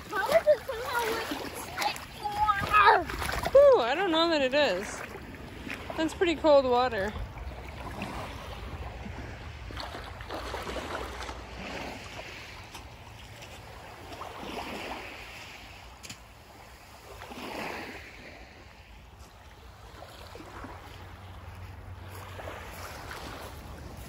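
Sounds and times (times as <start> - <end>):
waves lapping on pebbles: 0.0 - 24.0
wind rumble on microphone: 4.6 - 24.0.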